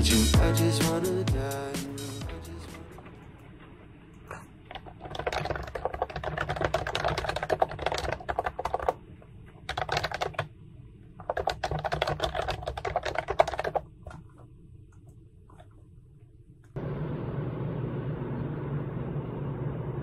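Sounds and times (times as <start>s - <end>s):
fast typing on keyboard: 4.7s - 9.0s, 9.6s - 10.5s, 11.2s - 14.2s.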